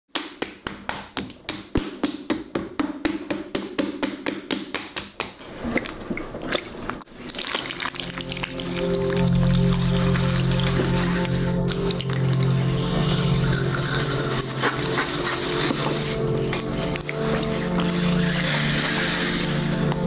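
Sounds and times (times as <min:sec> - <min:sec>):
wet taps: 0:00.1 - 0:06.3
low musical drone: 0:07.7 - 0:20.0.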